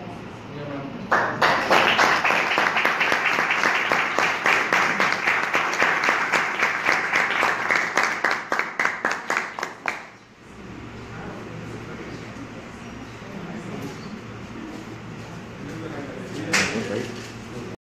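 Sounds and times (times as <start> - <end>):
group applauding: 1.1 - 10.2.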